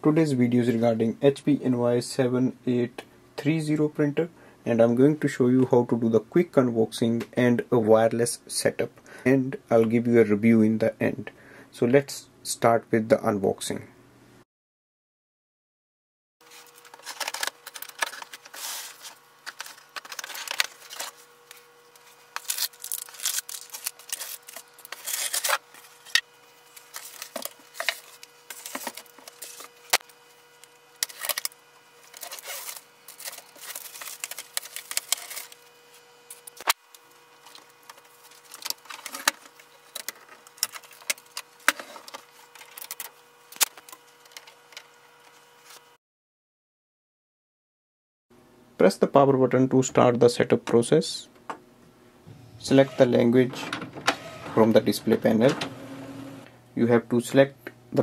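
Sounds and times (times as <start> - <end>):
faint steady hum: 0.0 - 14.4, 48.4 - 58.0
plastic packaging rustling: 16.4 - 35.7, 37.4 - 44.6.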